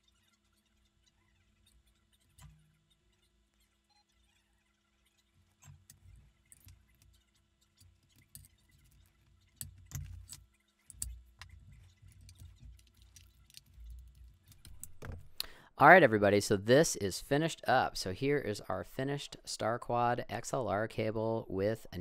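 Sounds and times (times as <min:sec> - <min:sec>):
mic cable connectors rattling: 0:05.6 - 0:15.4.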